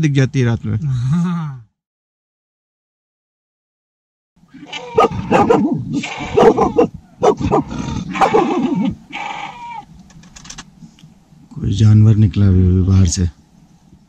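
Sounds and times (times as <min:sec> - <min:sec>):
dog barking loudly: 0:04.8 - 0:08.9.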